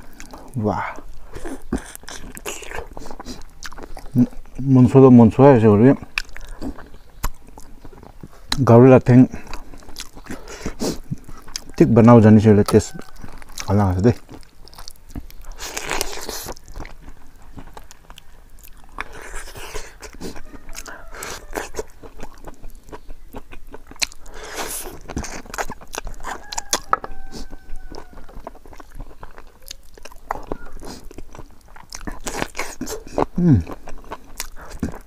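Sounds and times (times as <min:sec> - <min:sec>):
wet lip and teeth clicks: 0:00.0 - 0:04.6, 0:06.1 - 0:08.7, 0:09.4 - 0:11.8, 0:12.6 - 0:35.0
man chewing food: 0:00.0 - 0:35.0.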